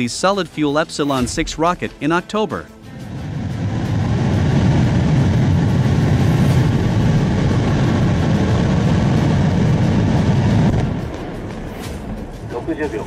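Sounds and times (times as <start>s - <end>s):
rocket motor roaring: 3.0s - 11.2s.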